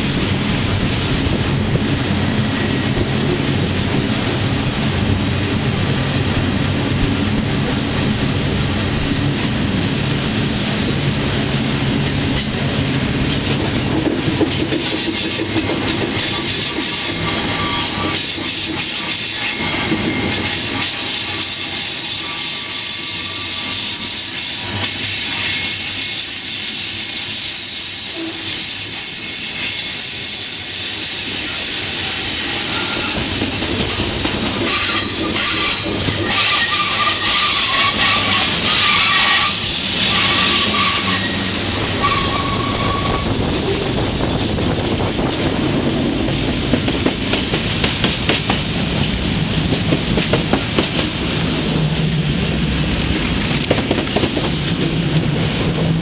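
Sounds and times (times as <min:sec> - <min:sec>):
train cars rumbling and rattling: 0:00.0 - 0:56.0
steel wheels squealing: 0:16.1 - 0:33.3, 0:34.6 - 0:45.0.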